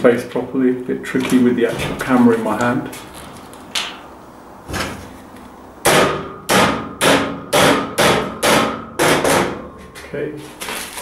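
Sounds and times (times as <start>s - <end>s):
sharp knocks on steel shelving: 5.8s - 9.7s.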